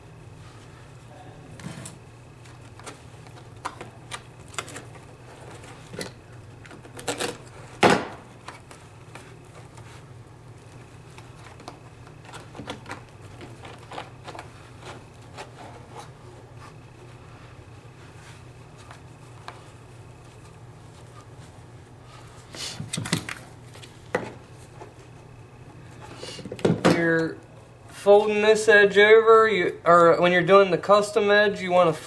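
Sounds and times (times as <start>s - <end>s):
carpet clicks and scrapes: 8.4s - 25.3s.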